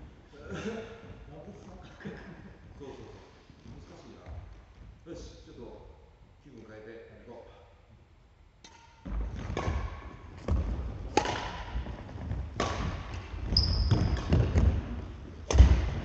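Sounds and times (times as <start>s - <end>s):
racket striking shuttlecock: 8.6s - 14.7s
shoe squeak: 13.5s - 14.3s.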